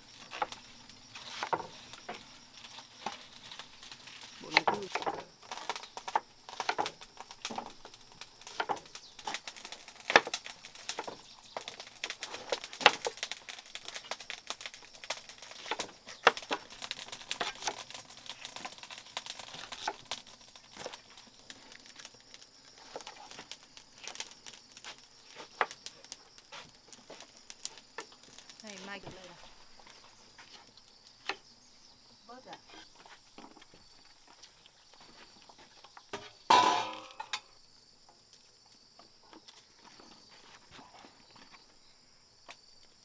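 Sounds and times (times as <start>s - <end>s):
cleavers chopping on boards: 4.5s - 7.7s.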